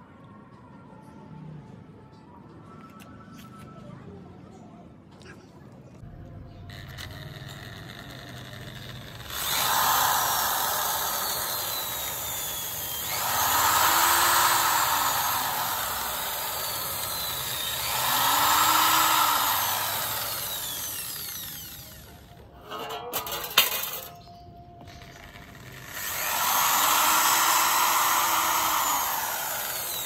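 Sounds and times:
electric drill drilling into bamboo: 0:06.7 - 0:22.4, 0:24.8 - 0:30.0.

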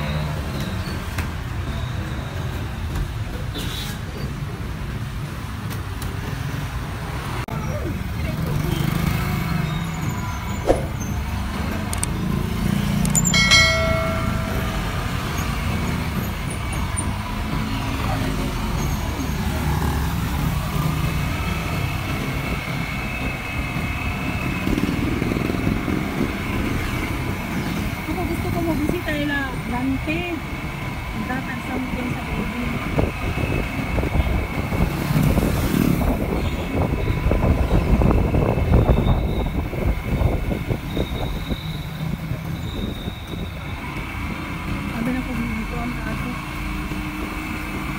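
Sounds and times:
motorcycle engine and road rumble: 0:00.0 - 0:47.9
surrounding traffic: 0:00.0 - 0:47.9
motorcycle engine: 0:10.7 - 0:18.8
short pitched tone: 0:13.2 - 0:15.9
wind noise on microphone: 0:31.9 - 0:44.4.

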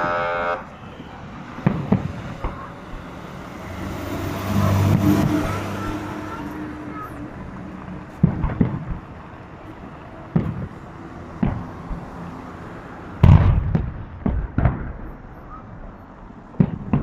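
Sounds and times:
firework shells booming: 0:00.9 - 0:03.9, 0:04.5 - 0:09.4, 0:10.3 - 0:10.8, 0:11.4 - 0:12.2, 0:13.2 - 0:17.0.

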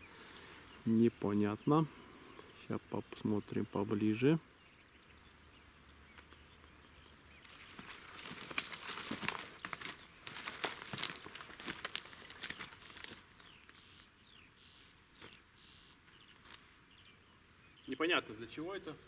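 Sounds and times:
dry grass crackling underfoot: 0:06.1 - 0:17.0.

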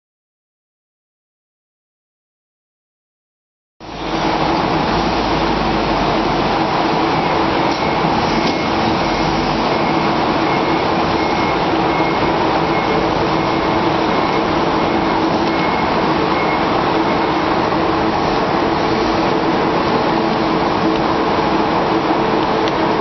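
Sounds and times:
forklift engine running: 0:03.9 - 0:23.0
faint high beep: 0:07.2 - 0:17.6.

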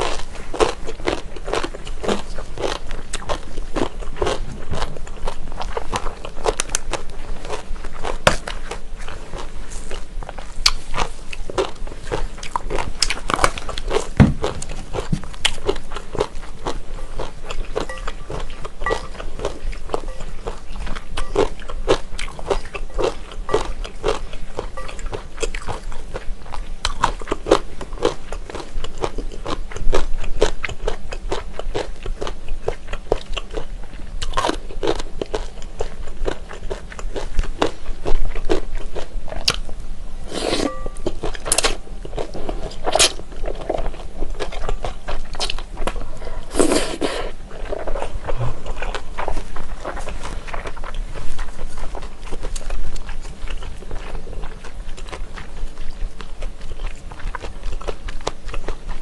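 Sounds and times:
noodle slurping: 0:46.4 - 0:47.9.

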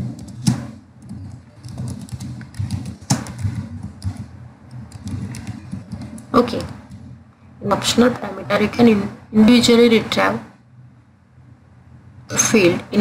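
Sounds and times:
computer keyboard typing: 0:00.0 - 0:07.1.

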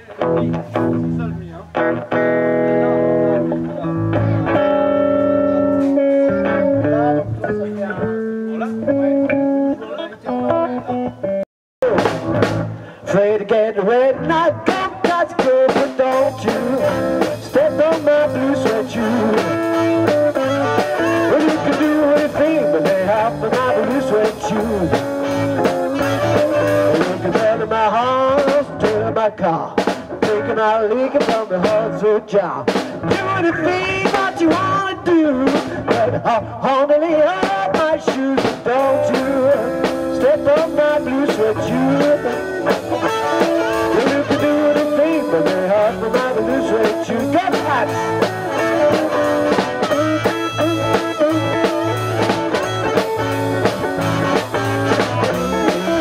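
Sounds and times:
bass guitar: 0:00.0 - 0:56.0
electric guitars: 0:00.0 - 0:56.0
harmonica lead line: 0:01.8 - 0:13.0, 0:14.3 - 0:28.8, 0:37.3 - 0:56.0
drum kit steady beat: 0:02.2 - 0:08.0, 0:11.8 - 0:12.9, 0:14.3 - 0:32.0, 0:32.6 - 0:56.0.

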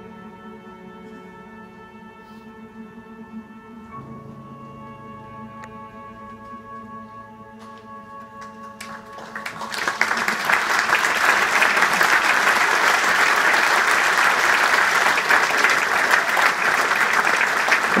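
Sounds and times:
audience applause: 0:08.4 - 0:18.0.

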